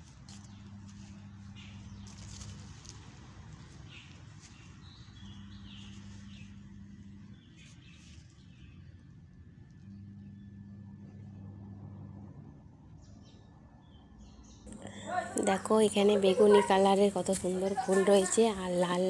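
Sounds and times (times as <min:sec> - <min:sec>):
low hum: 0:00.0 - 0:02.9, 0:05.1 - 0:13.8
faint birds chirping: 0:00.3 - 0:19.0.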